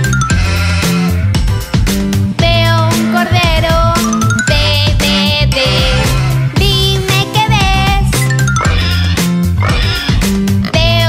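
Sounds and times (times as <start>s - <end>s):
children's song music: 0.0s - 11.0s.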